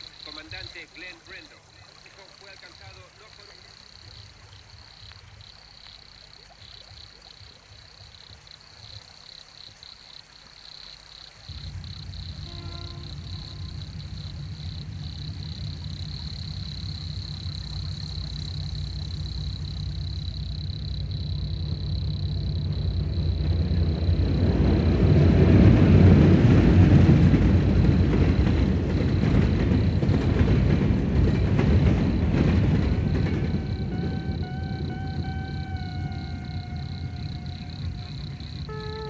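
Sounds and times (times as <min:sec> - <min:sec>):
vehicle engine and road rumble: 0:11.4 - 0:39.0.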